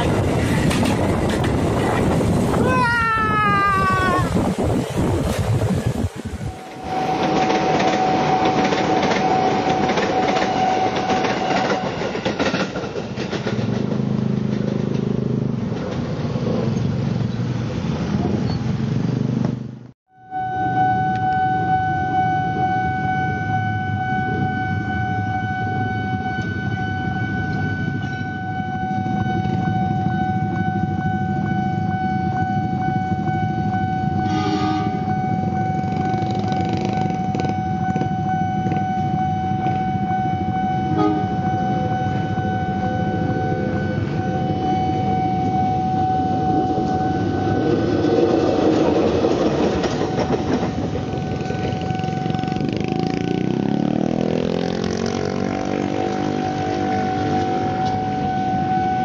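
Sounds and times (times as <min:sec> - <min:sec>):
diesel locomotive engine rumble: 0:00.0 - 0:59.0
level crossing alarm tone: 0:06.4 - 0:12.2, 0:20.1 - 0:55.4, 0:56.3 - 0:59.0.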